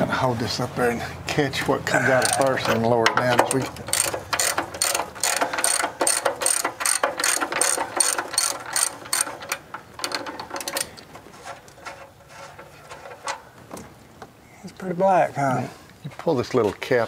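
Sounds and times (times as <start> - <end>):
socket ratchet clicking: 3.4 - 11.0.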